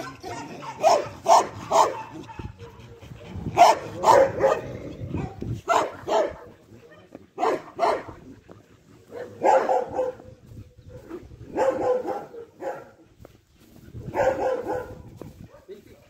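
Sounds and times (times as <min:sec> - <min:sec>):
dogs barking: 0:00.0 - 0:16.0.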